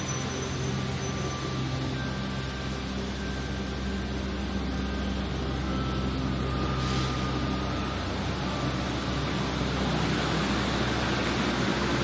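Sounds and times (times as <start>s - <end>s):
city traffic hum: 0.0s - 12.0s
fountain water rushing: 0.0s - 12.0s
brief hiss: 6.8s - 7.3s.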